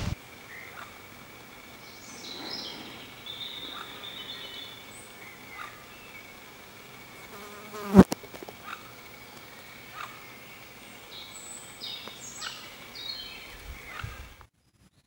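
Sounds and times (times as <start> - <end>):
flying insect buzzing: 0.0 - 13.7
faint bird chirps: 1.6 - 6.4.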